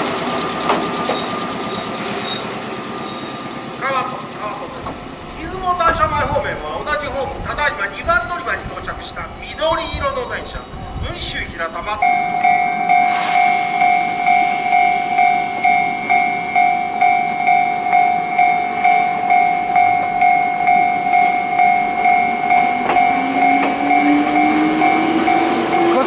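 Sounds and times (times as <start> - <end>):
train motor whine: 0.0 - 6.3, 12.2 - 18.5, 19.8 - 26.0
train clicks: 0.0 - 6.4, 21.6 - 26.0
level crossing warning bell: 1.0 - 26.0.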